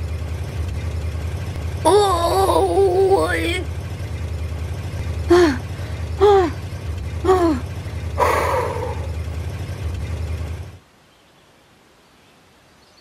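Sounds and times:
cartoon engine rumbling: 0.0s - 10.8s
breathy effortful sigh: 5.2s - 6.6s, 7.3s - 9.2s.

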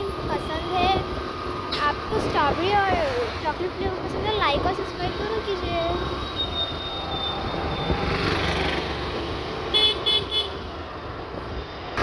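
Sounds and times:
road traffic noise: 0.0s - 12.0s
vehicle horn tooting: 9.7s - 10.6s.

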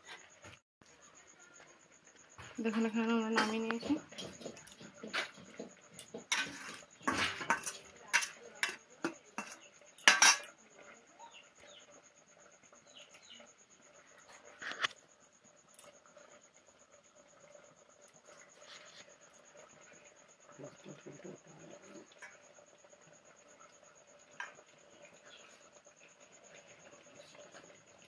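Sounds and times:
metal spatula clinking on bowl: 6.3s - 10.5s.

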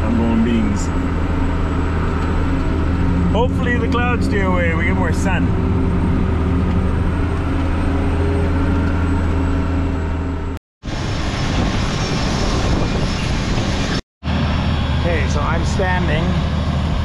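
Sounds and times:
tractor engine humming: 0.0s - 10.6s.

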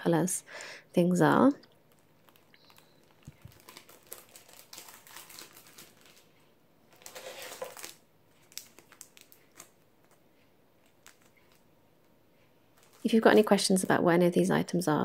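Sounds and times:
plastic wrapping crinkling: 1.8s - 10.2s, 10.8s - 11.7s, 12.7s - 14.0s.

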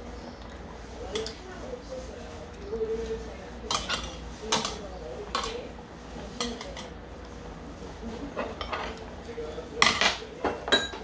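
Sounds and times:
utensils clinking on steel bowls: 0.4s - 1.7s, 2.5s - 7.0s, 8.2s - 9.1s, 9.7s - 11.0s
utensils clattering: 2.5s - 7.0s, 8.1s - 11.0s.

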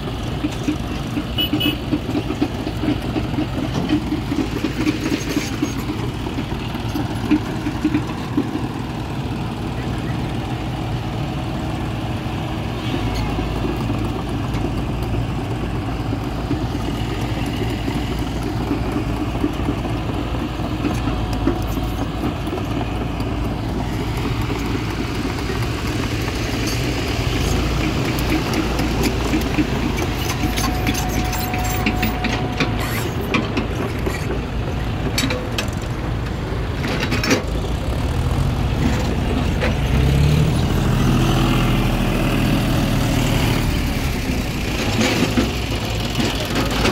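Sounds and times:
heavy diesel engines rumbling: 0.0s - 46.9s
tractor engine revving: 0.0s - 46.9s
knocks and rattles: 16.1s - 40.4s.

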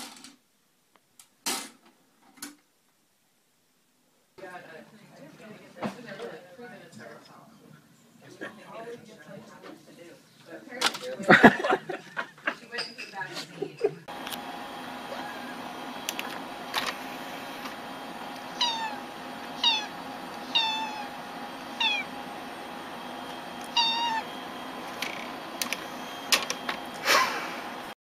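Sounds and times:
cat meowing: 18.5s - 22.2s, 23.6s - 24.4s.

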